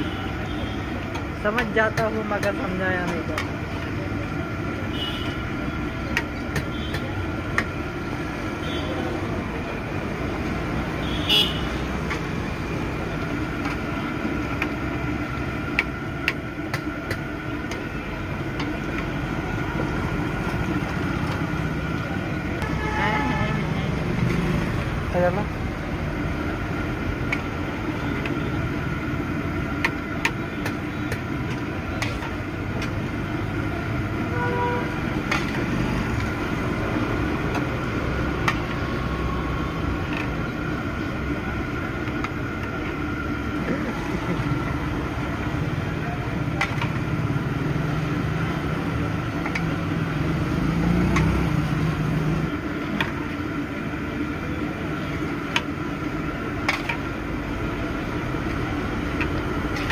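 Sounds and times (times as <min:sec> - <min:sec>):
gas burner roaring: 0:00.0 - 0:59.9
food deep-frying in oil: 0:24.2 - 0:34.3, 0:34.9 - 0:59.9.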